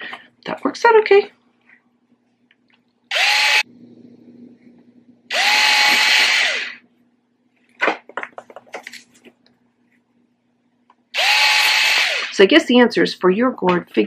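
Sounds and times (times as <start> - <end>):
cordless screwdriver drilling whir: 3.1 - 3.6, 5.3 - 6.8, 11.2 - 12.4.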